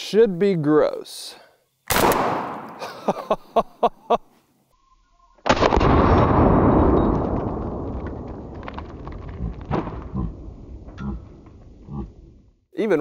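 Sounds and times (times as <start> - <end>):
shotgun blast: 1.9 - 2.8, 5.5 - 7.9.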